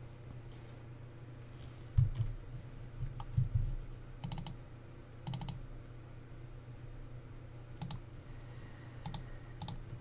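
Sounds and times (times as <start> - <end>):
steady low hum: 0.0 - 10.0
keyboard typing: 4.2 - 4.6, 5.2 - 5.6, 7.8 - 8.0, 9.0 - 9.8.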